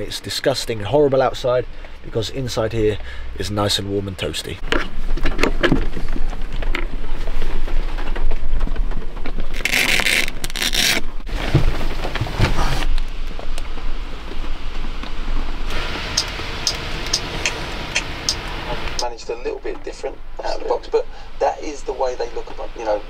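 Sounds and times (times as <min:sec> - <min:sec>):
heavy rain on vehicle roof: 0:11.3 - 0:19.0.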